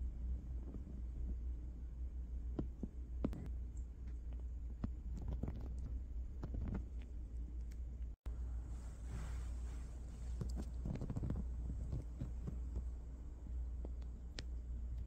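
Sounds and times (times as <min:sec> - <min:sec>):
steady low rumble: 0:00.0 - 0:15.0
scratching and rustling fabric: 0:08.6 - 0:13.0.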